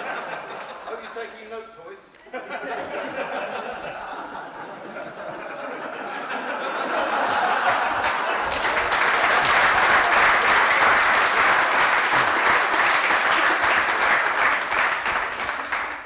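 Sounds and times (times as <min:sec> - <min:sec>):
audience applauding: 0:07.0 - 0:16.0.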